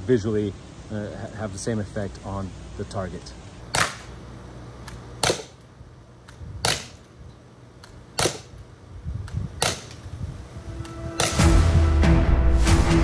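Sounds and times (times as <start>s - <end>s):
air gun firing reports: 3.6s - 4.2s, 4.8s - 5.6s, 6.6s - 7.1s, 8.2s - 8.6s, 9.6s - 10.2s
music: 10.7s - 13.0s.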